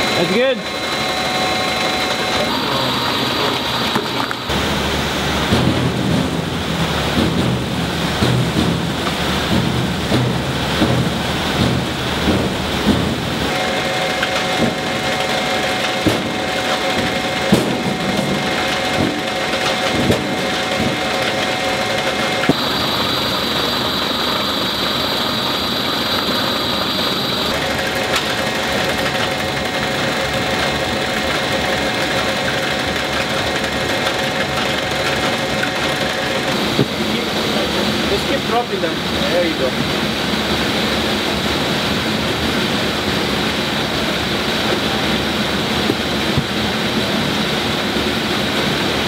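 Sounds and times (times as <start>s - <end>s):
conveyor machinery hum and rattle: 0.0s - 49.0s
sharp knocks: 5.4s - 13.6s, 14.2s - 22.7s.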